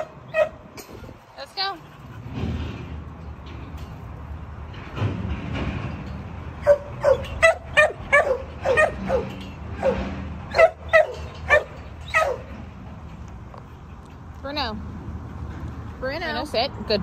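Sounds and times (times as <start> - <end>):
dog barking: 6.6 - 12.5.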